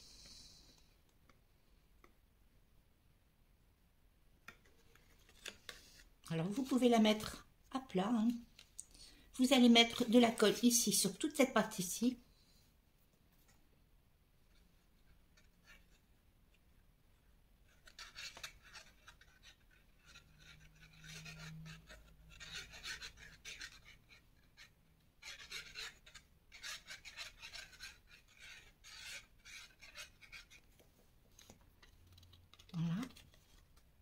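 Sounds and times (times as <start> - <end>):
glue nozzle rubbing on cardstock: 17.7 - 30.6.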